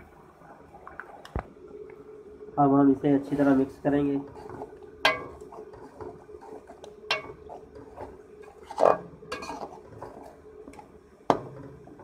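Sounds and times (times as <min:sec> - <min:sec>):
metal spoon scraping pot: 0:04.2 - 0:10.4.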